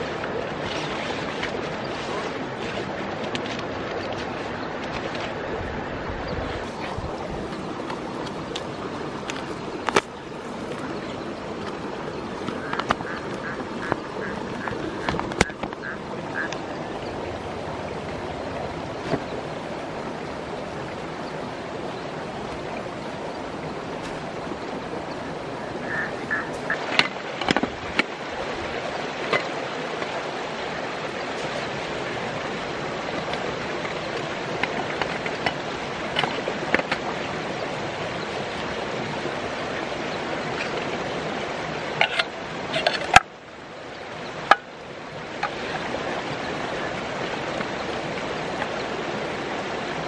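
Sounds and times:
river rushing: 0:00.0 - 0:50.0
camping gear clicking and knocking: 0:06.7 - 0:10.8, 0:12.4 - 0:15.8, 0:26.5 - 0:28.1, 0:33.1 - 0:37.1, 0:42.0 - 0:43.3, 0:44.4 - 0:44.7, 0:45.4 - 0:45.9.

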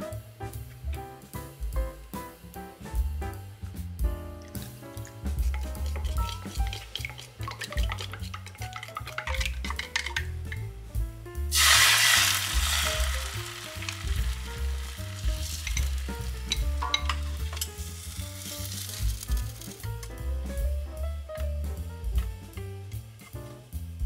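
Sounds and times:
background music: 0:00.0 - 0:24.0
utensils tapping on pan: 0:04.4 - 0:10.7, 0:11.5 - 0:20.1
egg sizzling in hot pan: 0:04.6 - 0:10.7, 0:11.5 - 0:20.2.

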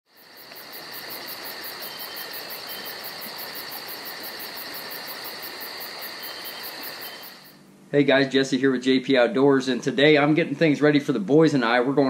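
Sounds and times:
insect high-pitched trill: 0:00.1 - 0:07.6
insect pulsing chirp: 0:00.1 - 0:07.6.

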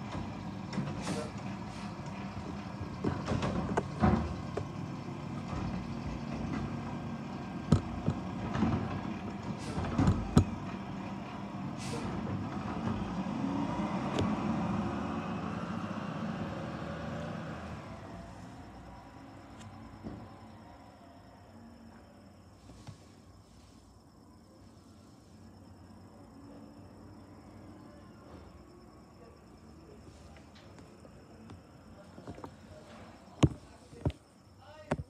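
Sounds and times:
garbage truck diesel engine: 0:00.0 - 0:34.5
air brake hiss: 0:01.0 - 0:02.0, 0:09.6 - 0:09.9, 0:11.7 - 0:12.2.

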